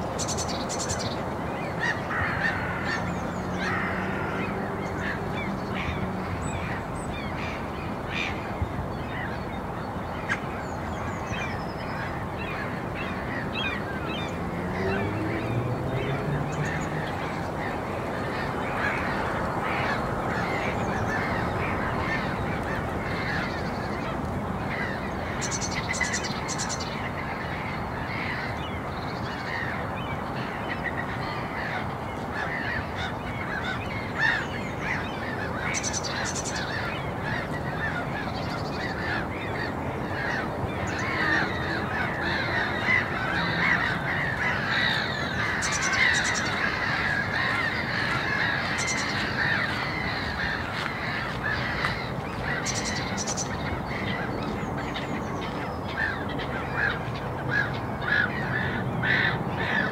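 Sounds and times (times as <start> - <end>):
birds calling: 0.0 - 59.9.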